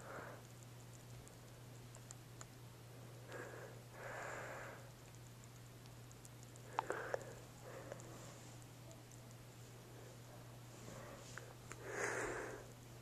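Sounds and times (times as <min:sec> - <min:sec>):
low steady hum: 0:00.0 - 0:13.0
gerbil chewing clicks: 0:00.4 - 0:02.6, 0:04.9 - 0:09.5.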